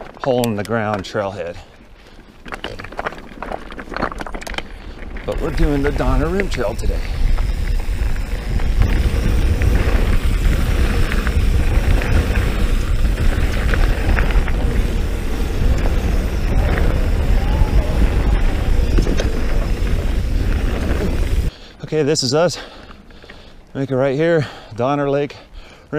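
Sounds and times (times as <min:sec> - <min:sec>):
bike clicks and rattles: 0:00.0 - 0:21.5, 0:22.5 - 0:23.7
bike tyre noise: 0:00.0 - 0:24.9
wind rumble on microphone: 0:05.2 - 0:21.5.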